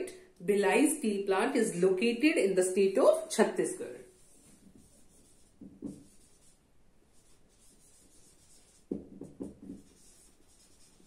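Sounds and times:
marker squeaking on whiteboard: 4.2s - 6.6s, 7.2s - 11.0s.

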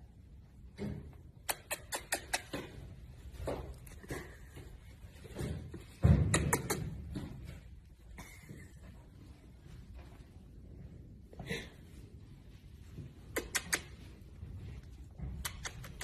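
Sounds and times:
kissing smacks: 1.4s - 2.6s, 6.3s - 6.9s, 13.3s - 14.0s, 15.4s - 16.0s.

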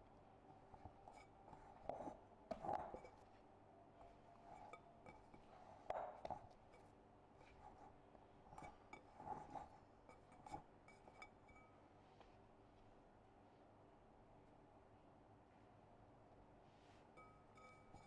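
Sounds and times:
glass bowl clinking on counter: 17.2s - 18.0s.

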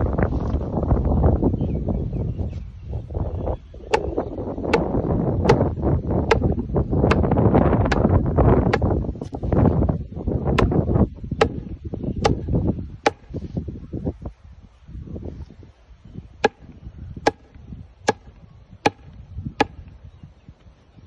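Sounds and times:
sledgehammer knocking on post: 6.3s - 8.9s, 11.4s - 11.6s, 17.3s - 18.3s, 18.9s - 19.8s.

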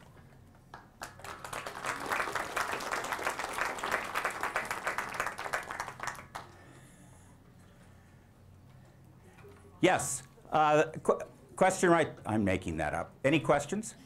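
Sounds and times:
audience applauding: 0.7s - 6.6s.

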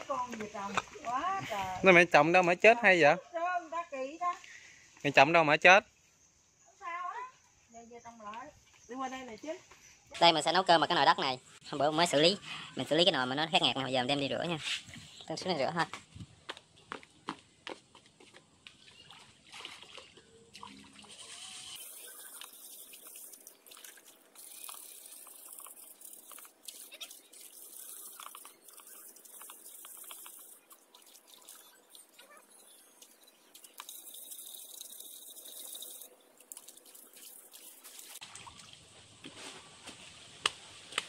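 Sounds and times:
water sloshing and trickling: 18.6s - 40.3s.

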